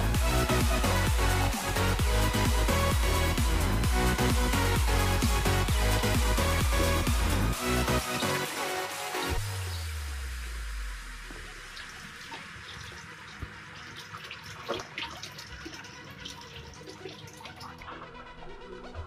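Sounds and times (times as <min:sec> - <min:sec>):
aquarium water trickling and bubbling: 0:07.6 - 0:18.9.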